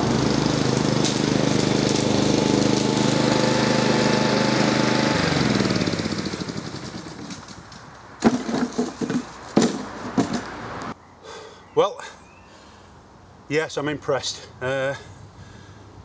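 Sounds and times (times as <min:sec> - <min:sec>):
lawn mower engine running: 0:00.0 - 0:10.4
sharp knocks and clatters: 0:07.2 - 0:10.6.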